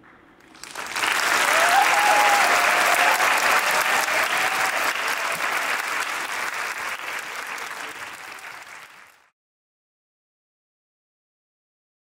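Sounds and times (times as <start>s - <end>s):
audience applause: 0.4s - 9.3s.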